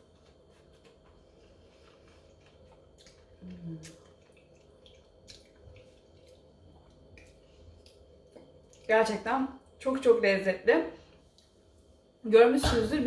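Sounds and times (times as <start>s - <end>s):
person chewing food: 0.0s - 8.9s
person humming mmm: 3.4s - 4.0s.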